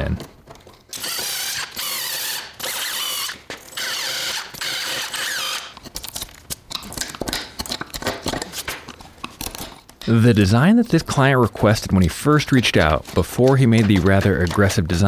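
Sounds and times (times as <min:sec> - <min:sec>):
power drill bursts: 0:00.9 - 0:05.7.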